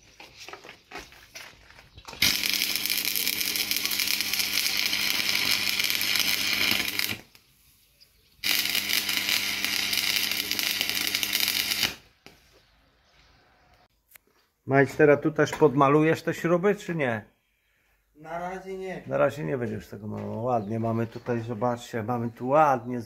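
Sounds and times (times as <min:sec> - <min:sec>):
arc welder crackle: 0:02.1 - 0:07.5, 0:08.4 - 0:12.1.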